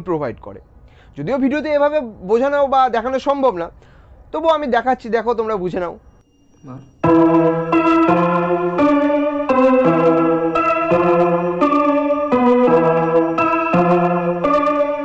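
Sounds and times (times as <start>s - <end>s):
organ-like keyboard music: 7.0s - 15.0s.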